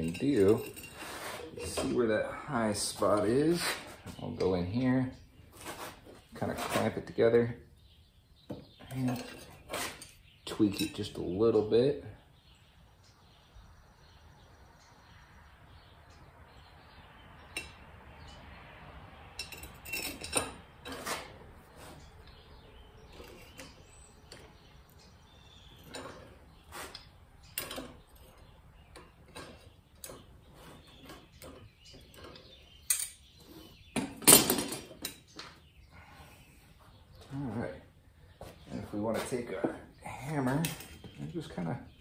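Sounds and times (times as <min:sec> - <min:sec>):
tongs clinking on metal: 0:00.0 - 0:01.0, 0:09.1 - 0:11.1.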